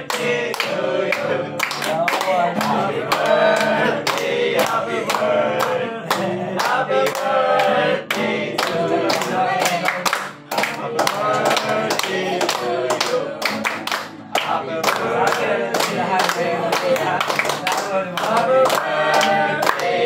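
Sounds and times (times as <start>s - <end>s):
men singing together: 0.0s - 20.0s
clapping in time: 8.6s - 19.9s.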